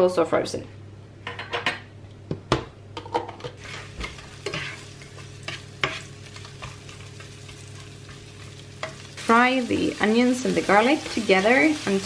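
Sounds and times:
spatula scraping frying pan: 3.6 - 9.1
onions sizzling in oil: 3.6 - 12.0.

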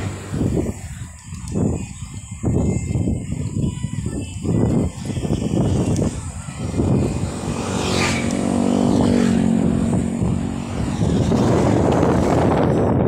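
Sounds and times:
motorcycle passing by: 0.0 - 0.6, 5.7 - 13.0
wind buffeting microphone: 0.0 - 13.0.

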